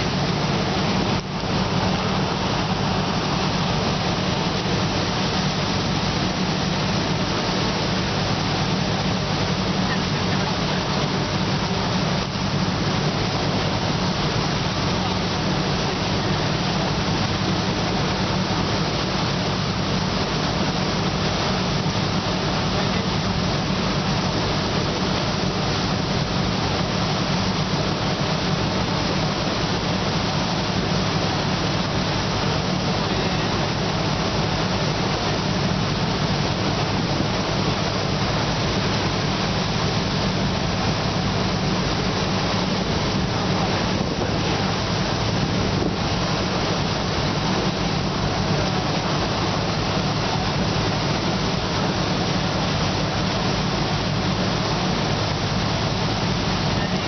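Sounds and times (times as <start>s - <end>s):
boat engine humming: 0.0s - 57.0s
water rushing along hull: 0.0s - 57.0s
wind: 0.0s - 57.0s.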